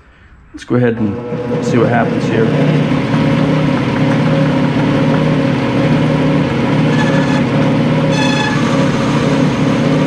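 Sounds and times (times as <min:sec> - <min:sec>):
metal lathe humming: 0:01.0 - 0:10.0
thin high-pitched ring: 0:06.9 - 0:07.5, 0:08.1 - 0:09.3
ringing tone: 0:06.9 - 0:09.8.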